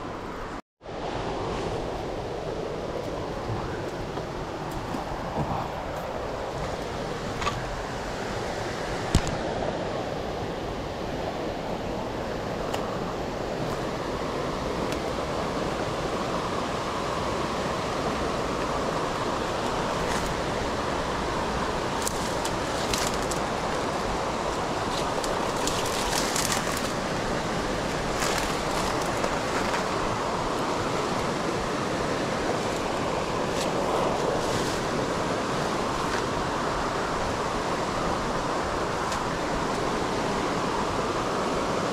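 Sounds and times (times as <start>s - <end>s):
river rushing over rocks: 0.1s - 41.9s.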